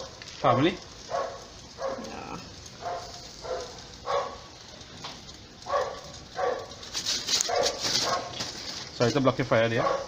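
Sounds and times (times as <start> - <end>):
dog barking: 1.1 - 2.2, 2.8 - 4.5, 5.6 - 6.8, 7.4 - 8.4, 9.8 - 10.0.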